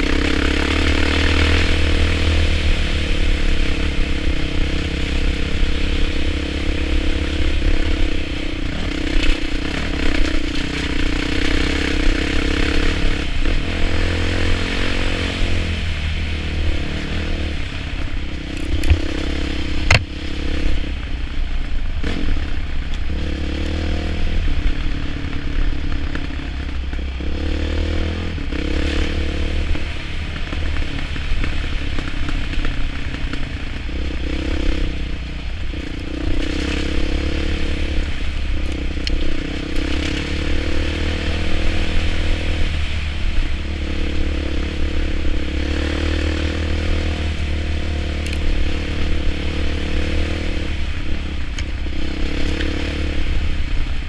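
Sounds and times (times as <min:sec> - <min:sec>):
motorcycle engine revving: 0:00.0 - 0:54.0
motorcycle rattling over bumps: 0:00.0 - 0:54.0.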